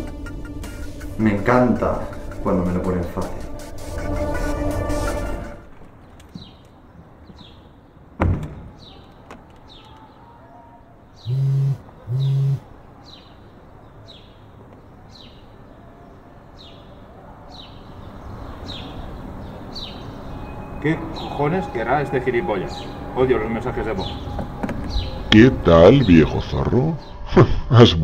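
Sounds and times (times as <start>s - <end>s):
bird chirping: 5.8s - 27.3s
mobile phone vibrating: 11.3s - 12.6s.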